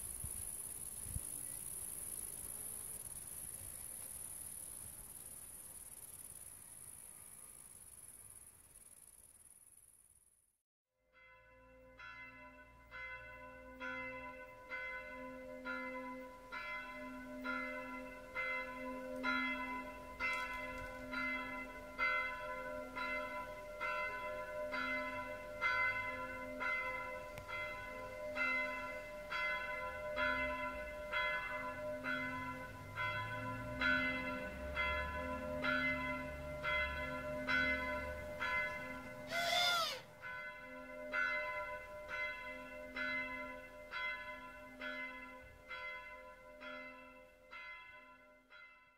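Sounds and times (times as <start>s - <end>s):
church bell ringing: 11.0s - 39.4s, 40.0s - 48.9s.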